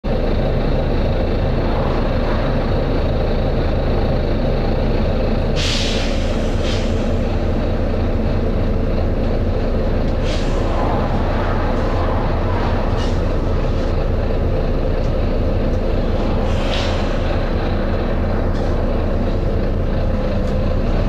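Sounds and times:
bus diesel engine running: 0:00.0 - 0:21.0
compressed air hiss: 0:05.6 - 0:07.2, 0:10.2 - 0:10.8, 0:16.4 - 0:17.2.

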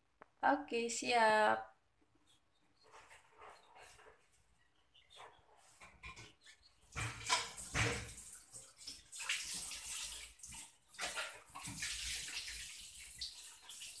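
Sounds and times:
water running and splashing: 0:06.8 - 0:14.0.

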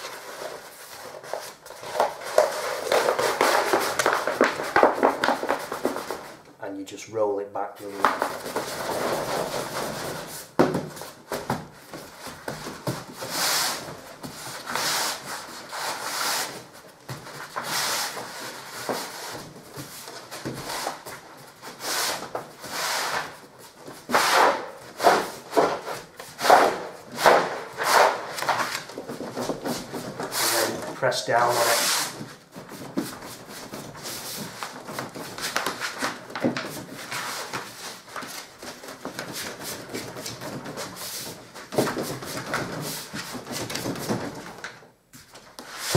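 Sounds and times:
paper rubbing swishes: 0:29.6 - 0:30.9.

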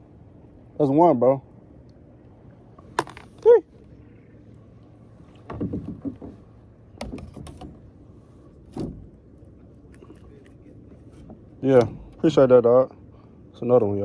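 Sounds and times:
rod and paddle knocking on hull: 0:05.4 - 0:07.9, 0:08.7 - 0:09.1.

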